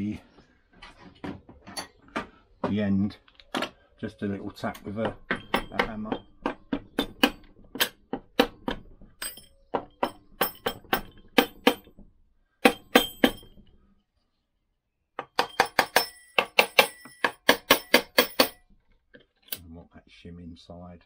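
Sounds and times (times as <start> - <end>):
hammer tapping metal: 4.8 - 11.9, 12.6 - 13.6, 15.2 - 18.6.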